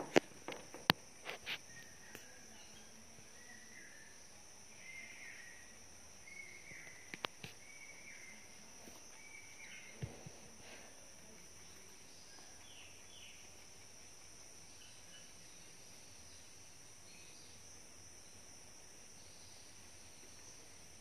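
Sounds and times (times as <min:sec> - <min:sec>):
steady high-pitched hiss: 0:00.0 - 0:21.0.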